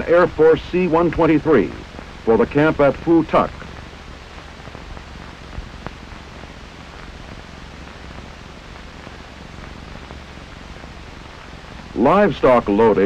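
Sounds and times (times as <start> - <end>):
film soundtrack hiss: 0.0 - 13.0
faint clicks: 3.4 - 12.0.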